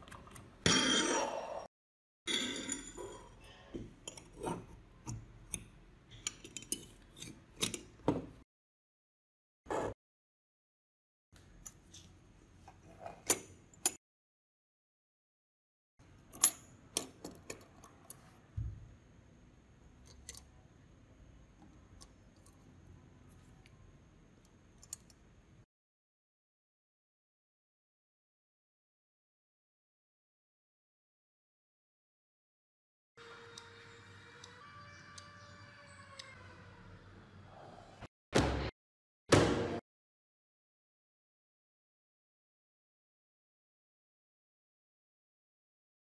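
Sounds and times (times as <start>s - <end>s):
metal snips clinking and scraping: 2.3s - 7.9s.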